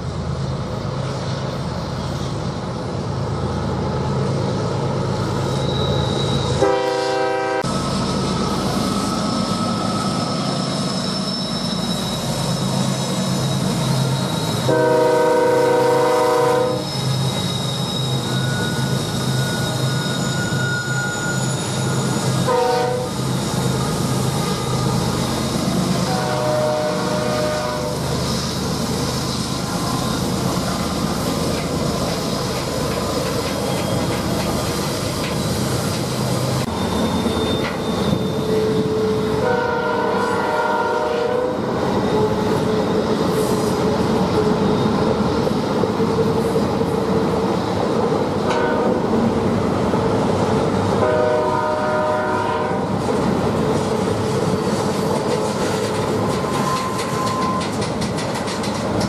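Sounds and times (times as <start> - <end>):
locomotive engine drone: 0.0 - 59.0
train wheel squeal: 3.6 - 59.0
train air horn blasts: 6.6 - 7.7, 14.6 - 17.0, 22.4 - 23.2, 26.0 - 28.1, 38.4 - 41.6, 48.5 - 49.0, 51.0 - 52.9
train cars clattering: 16.3 - 49.5, 52.3 - 59.0.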